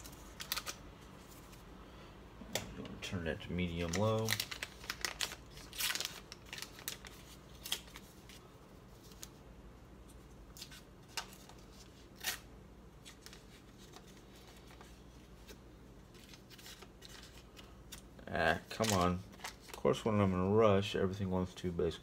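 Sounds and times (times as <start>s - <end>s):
paper wrapper crinkling: 0.0s - 1.6s, 3.4s - 9.4s, 13.0s - 20.1s.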